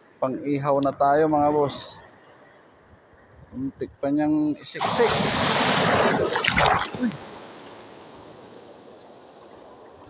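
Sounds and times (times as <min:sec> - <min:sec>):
seawater rushing and splashing: 0:04.8 - 0:08.4.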